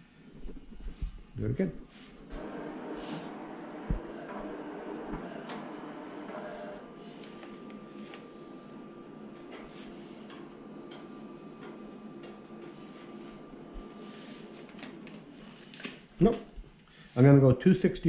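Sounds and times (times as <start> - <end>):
film crinkling and clicks: 14.1 - 16.3.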